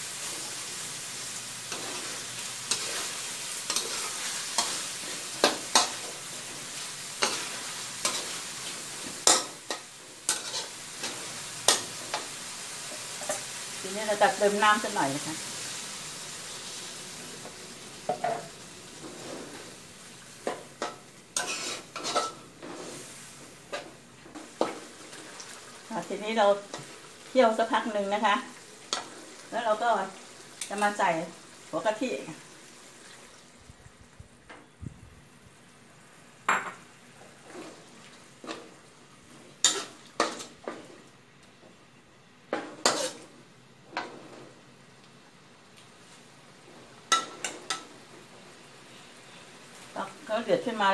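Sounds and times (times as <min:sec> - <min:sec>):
water hissing in hot wok: 0:00.0 - 0:34.2
metal spatula scraping wok: 0:01.6 - 0:13.5, 0:18.1 - 0:19.8, 0:20.8 - 0:24.9, 0:39.4 - 0:41.0, 0:42.8 - 0:43.3.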